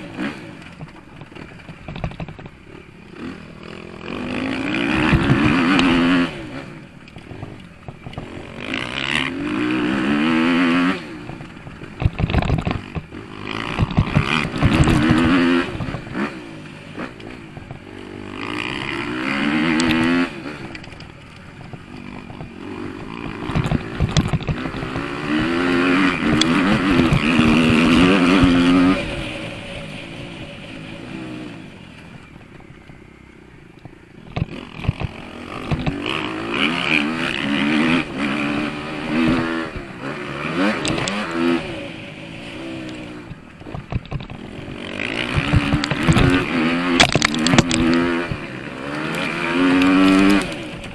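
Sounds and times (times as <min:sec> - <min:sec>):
motocross bike engine revving: 0:00.0 - 0:50.9
sharp knocks and rattles: 0:00.6 - 0:02.7, 0:11.2 - 0:16.1, 0:17.1 - 0:29.0, 0:33.8 - 0:37.7, 0:42.6 - 0:50.9.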